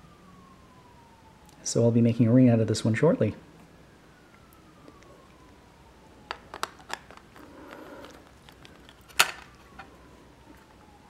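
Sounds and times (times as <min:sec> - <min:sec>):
coin case clicks: 0:08.6 - 0:09.6.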